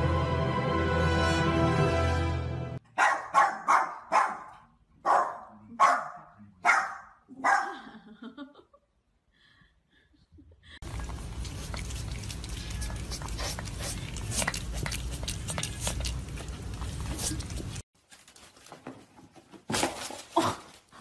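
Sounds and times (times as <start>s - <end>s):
small dog barking: 2.9s - 7.8s.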